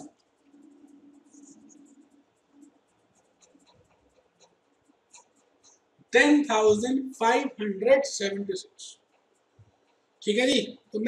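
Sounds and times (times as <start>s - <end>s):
faint low hum: 0.0s - 11.0s
small soft ticks: 2.6s - 5.9s.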